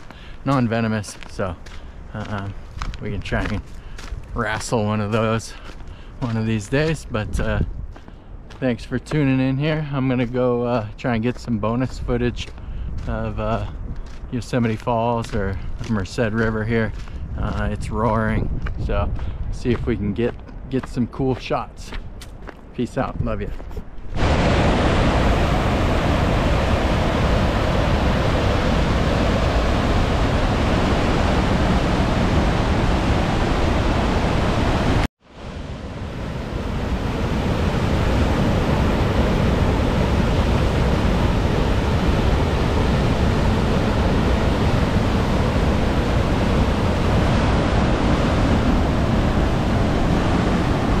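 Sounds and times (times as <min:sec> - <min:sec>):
roar of rushing water: 0:24.2 - 0:51.0.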